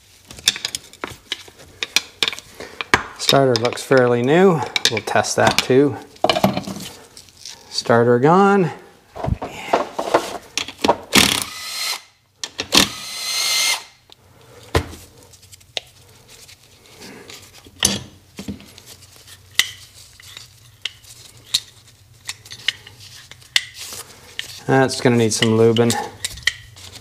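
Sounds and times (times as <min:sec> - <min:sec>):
cordless drill running: 0:11.3 - 0:12.1, 0:12.8 - 0:13.9.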